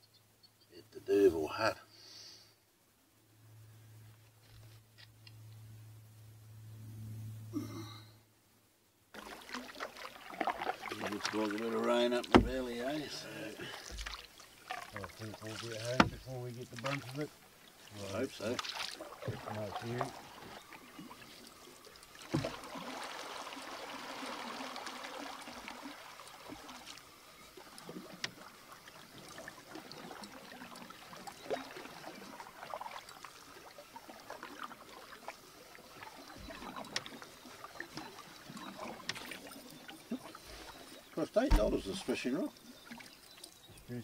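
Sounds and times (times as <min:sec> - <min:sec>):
water dripping off paddle: 0:09.2 - 0:43.9
paddle strokes in water: 0:09.2 - 0:44.0.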